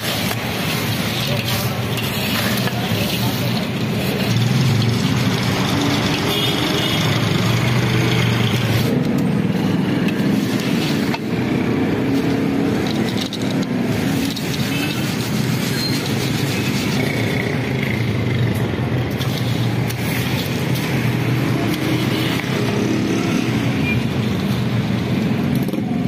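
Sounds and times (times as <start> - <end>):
peanuts scraping and rattling in sand: 0.0 - 7.3, 10.0 - 17.6.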